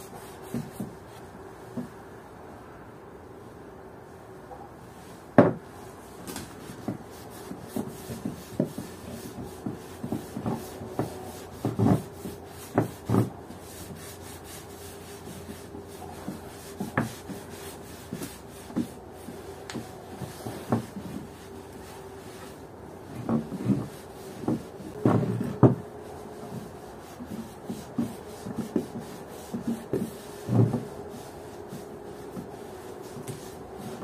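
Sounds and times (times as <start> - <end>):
faint steady hum: 0.0 - 34.0
objects knocking and tapping: 5.4 - 5.6.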